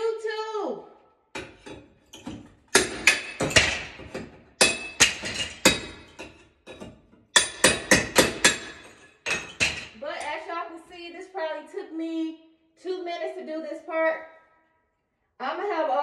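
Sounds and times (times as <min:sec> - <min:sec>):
hammer striking steel crowbar: 0:01.4 - 0:09.9.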